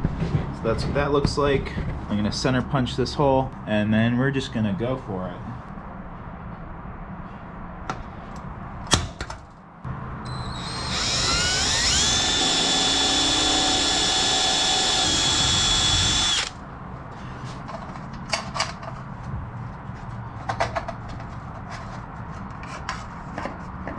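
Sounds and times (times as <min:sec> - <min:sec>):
power drill boring through metal: 0:10.3 - 0:16.6.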